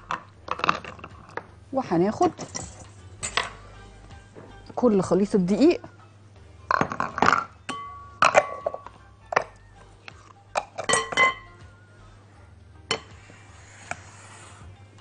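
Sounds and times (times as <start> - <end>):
glass bowl clinking: 6.7 - 9.6, 10.6 - 11.6, 12.9 - 13.2
flour mixture scraped into bowl: 13.1 - 14.8.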